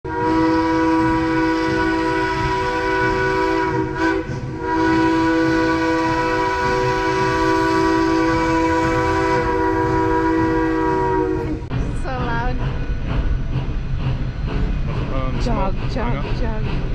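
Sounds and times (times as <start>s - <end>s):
steam locomotive whistle: 0.1s - 11.7s.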